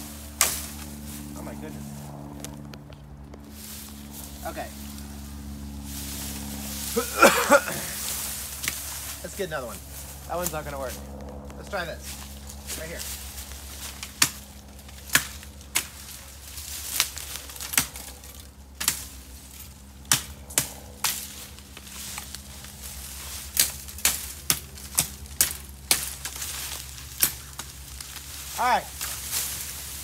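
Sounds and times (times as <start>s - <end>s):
low hum: 0.0s - 30.0s
bamboo canes clicking and cracking: 13.5s - 30.0s.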